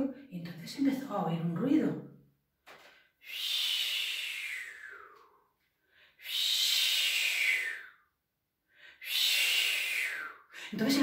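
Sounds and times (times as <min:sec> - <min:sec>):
person making breathy whoosh: 0:03.2 - 0:05.4, 0:06.2 - 0:08.0, 0:08.9 - 0:10.8.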